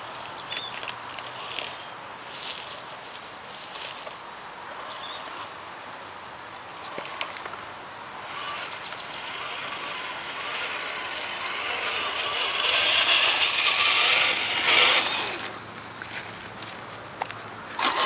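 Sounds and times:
electric motor whining: 0.0 - 1.8, 6.8 - 15.8, 17.8 - 18.0.

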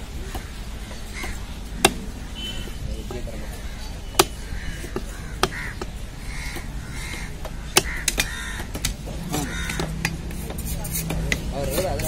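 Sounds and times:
crows cawing: 0.2 - 2.6, 3.4 - 10.1
knife chopping on wood: 4.2 - 6.7, 7.4 - 12.0.

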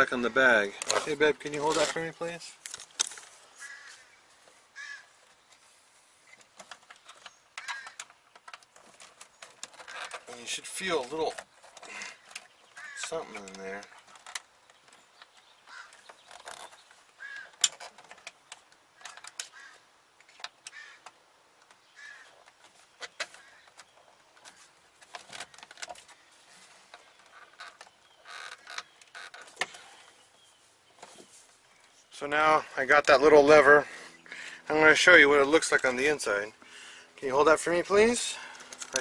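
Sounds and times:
faint bird calls: 3.4 - 8.4, 9.2 - 18.3, 18.9 - 32.8.

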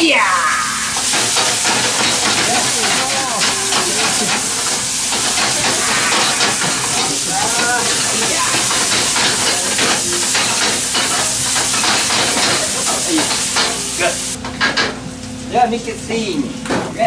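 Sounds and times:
chicken sizzling loudly in a pan: 0.5 - 14.4
pan and spatula scraping: 0.7 - 13.9.

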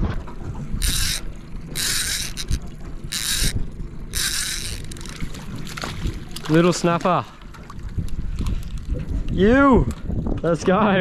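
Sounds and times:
fishing reel whirring: 0.8 - 5.8.

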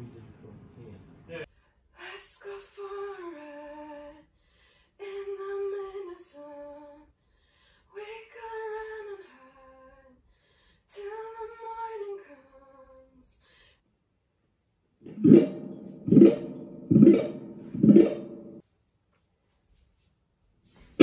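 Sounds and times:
woman singing unaccompanied: 2.0 - 4.3, 5.0 - 7.1, 7.9 - 10.2, 10.9 - 13.4.

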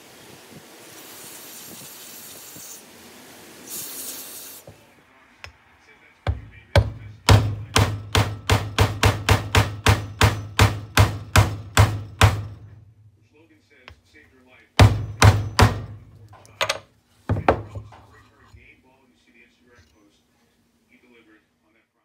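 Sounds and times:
aerosol spray hissing: 0.0 - 4.8
mallet striking wooden block: 6.3 - 12.6, 14.8 - 16.0.

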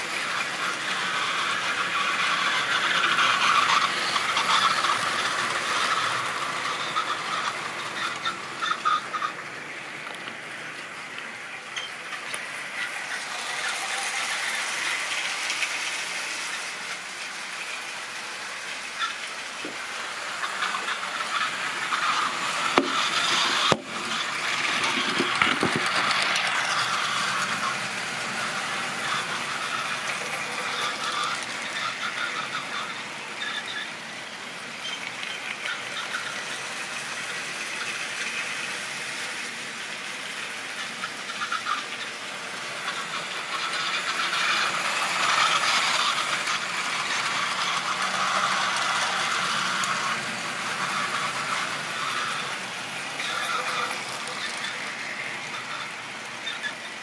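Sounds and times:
model train motors whirring: 0.0 - 57.0
wheels rattling and squealing on track: 0.0 - 57.0.

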